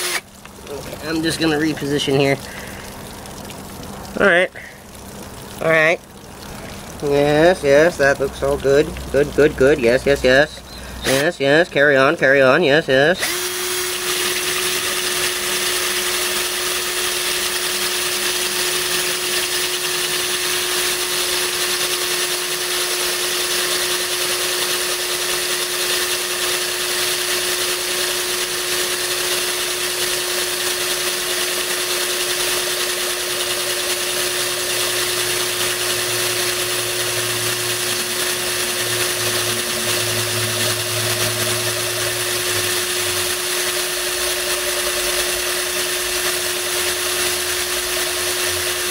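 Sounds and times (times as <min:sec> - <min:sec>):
cordless drill whine: 0:00.0 - 0:00.3, 0:10.7 - 0:11.3, 0:13.2 - 0:48.9
water pouring and splashing: 0:00.0 - 0:12.4, 0:13.3 - 0:48.9
low hum: 0:36.2 - 0:46.1.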